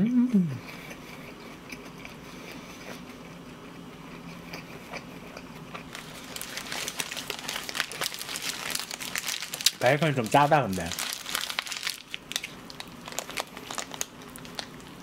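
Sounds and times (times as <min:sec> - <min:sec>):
close-up chewing: 0:00.6 - 0:09.8, 0:10.8 - 0:15.0
paper wrapper crinkling: 0:05.9 - 0:15.0.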